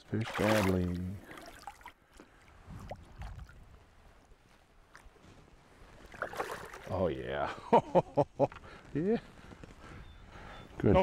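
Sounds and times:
water splashing against hull: 0.0s - 3.9s, 6.0s - 6.9s.

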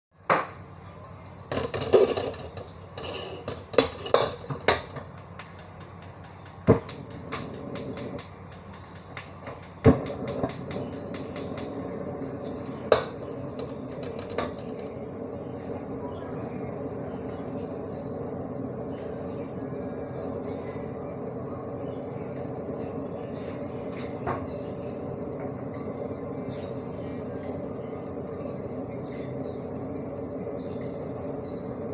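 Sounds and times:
metal spatula scraping wok: 1.9s - 4.4s.

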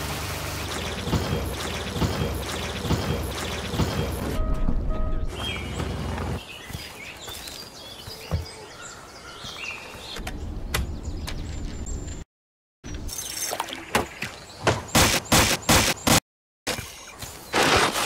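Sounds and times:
birds chirping: 0.7s - 12.2s.

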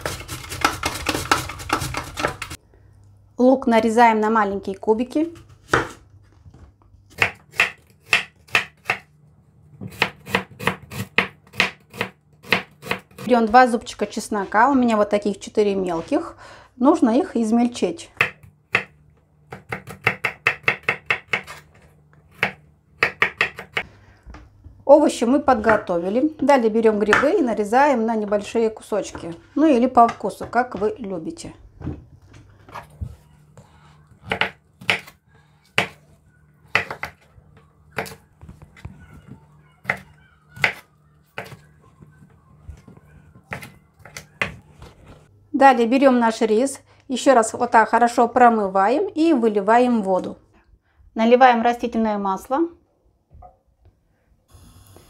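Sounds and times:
knife chopping on wooden board: 7.1s - 9.1s, 9.8s - 13.2s, 18.2s - 21.6s, 22.4s - 23.8s, 34.2s - 36.0s, 36.7s - 37.2s.

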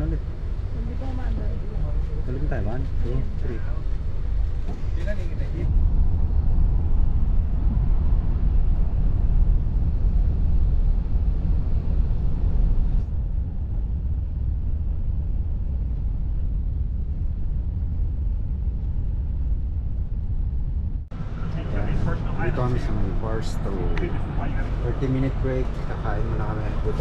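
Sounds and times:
bus engine and road noise: 0.0s - 27.0s.

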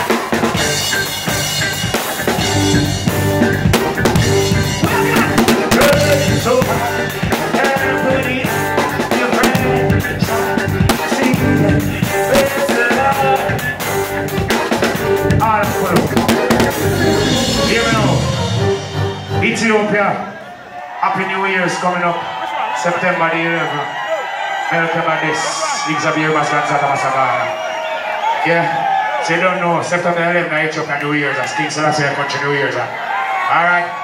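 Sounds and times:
drum kit beat: 0.0s - 19.7s
live band music: 0.0s - 20.5s.

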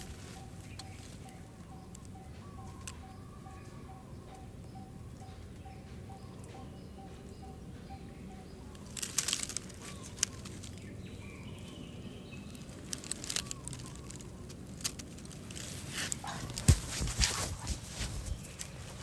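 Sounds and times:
sharp crackles and snaps: 0.0s - 4.5s, 8.6s - 19.0s
outdoor background: 0.0s - 19.0s.

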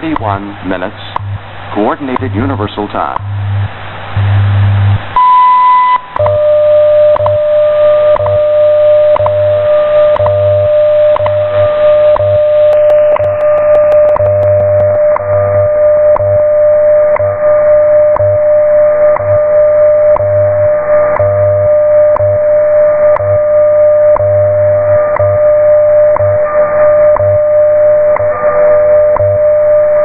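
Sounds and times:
ticks: 0.0s - 0.4s, 1.1s - 1.4s, 2.0s - 2.5s, 3.1s - 3.4s, 6.0s - 6.4s, 7.1s - 7.4s, 8.1s - 8.4s, 9.1s - 15.4s, 16.1s - 16.4s, 17.1s - 17.4s, 18.1s - 18.4s, 19.1s - 19.4s, 20.1s - 20.4s, 21.0s - 21.5s, 22.1s - 22.4s, 23.0s - 23.5s, 24.1s - 25.5s, 26.1s - 27.4s, 28.1s - 28.5s, 29.1s - 29.5s
steady radio tone: 0.0s - 4.9s, 6.2s - 30.0s
radio static hiss: 0.0s - 5.2s, 24.3s - 30.0s
low pulsing buzz: 0.0s - 30.0s.

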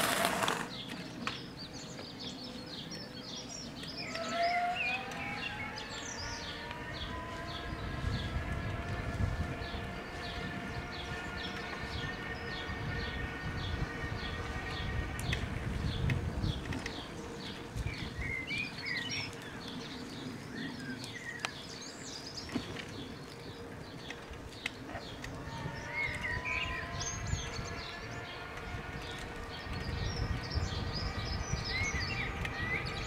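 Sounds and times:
electric motor whine: 0.0s - 1.0s, 3.7s - 33.0s
tyres rumbling over brick paving: 0.0s - 1.1s
birds chirping: 0.0s - 33.0s
wind on microphone: 5.0s - 33.0s.

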